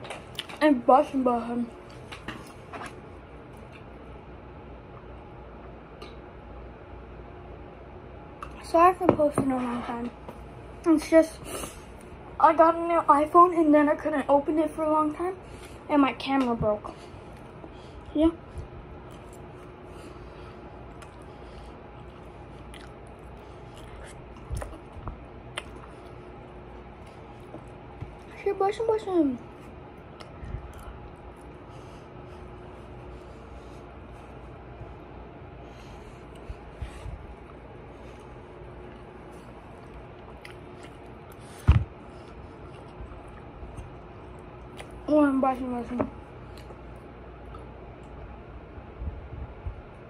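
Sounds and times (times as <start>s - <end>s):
person chewing food: 17.1s - 28.3s, 29.4s - 45.1s, 46.3s - 48.3s.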